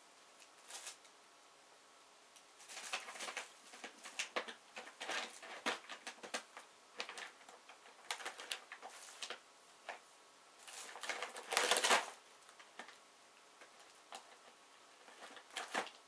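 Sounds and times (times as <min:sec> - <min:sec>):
plastic bags crinkling: 0:00.6 - 0:01.0, 0:02.6 - 0:09.4, 0:10.6 - 0:13.0, 0:13.7 - 0:16.0.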